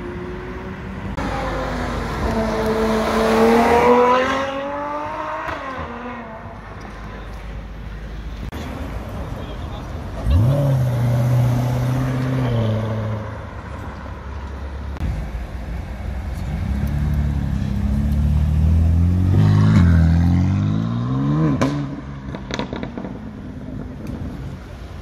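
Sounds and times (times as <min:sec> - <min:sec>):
car driving past and accelerating: 0:00.0 - 0:06.5, 0:16.5 - 0:23.9
sports car pulling away: 0:16.4 - 0:23.1.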